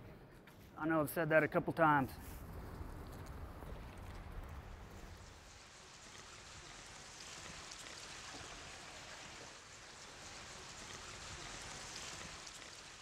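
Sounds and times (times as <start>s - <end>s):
water flowing over concrete: 2.8s - 13.0s.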